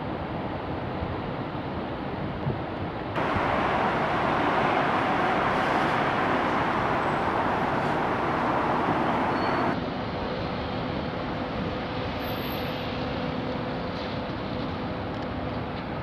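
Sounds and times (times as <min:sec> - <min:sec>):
vehicle rushing hiss: 0:03.2 - 0:09.8.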